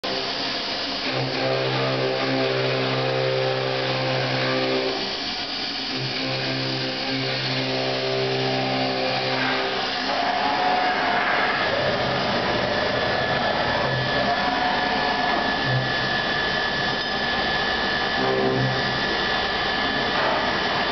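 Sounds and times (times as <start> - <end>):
hiss of metal cutting: 0.0 - 12.0
milling machine humming and whining: 0.0 - 20.9.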